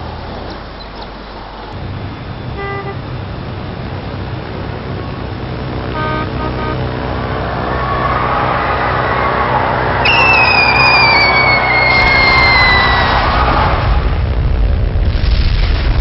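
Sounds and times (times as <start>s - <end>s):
rush of traffic noise: 0.0s - 15.2s
traffic engine rumble: 0.0s - 16.0s
car horn toots: 2.6s - 3.0s, 5.9s - 7.1s.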